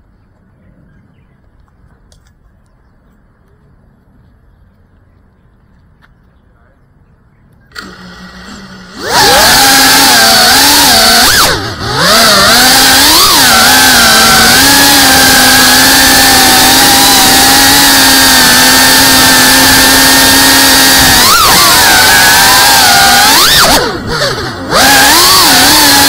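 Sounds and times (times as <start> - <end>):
drone motors buzzing: 7.5 - 26.0.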